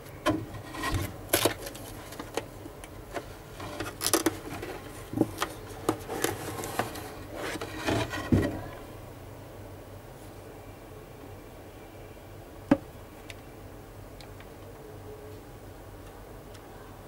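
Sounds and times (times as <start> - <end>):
rustling of cardboard packaging: 0.3 - 8.8.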